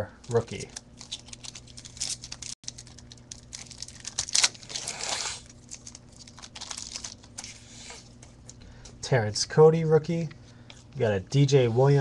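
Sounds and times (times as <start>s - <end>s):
foil wrapper crinkling: 0.2s - 8.6s.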